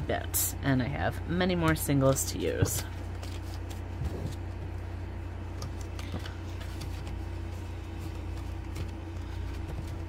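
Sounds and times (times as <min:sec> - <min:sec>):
steady low hum: 0:00.0 - 0:10.0
paper rustling and clicking: 0:01.7 - 0:04.5, 0:05.6 - 0:10.0.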